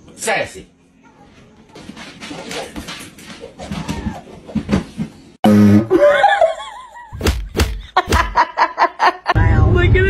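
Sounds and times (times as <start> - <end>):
person laughing: 5.9 - 9.4.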